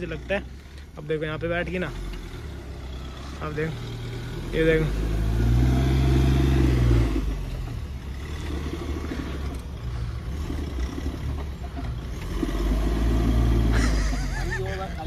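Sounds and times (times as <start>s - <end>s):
car engine revving under load: 0.0s - 15.0s.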